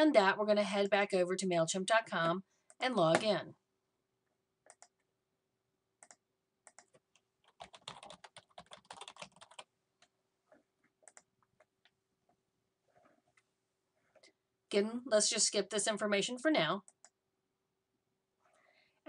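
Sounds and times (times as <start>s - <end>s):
typing on computer keyboard: 4.6s - 5.0s, 6.0s - 10.1s, 11.0s - 11.9s.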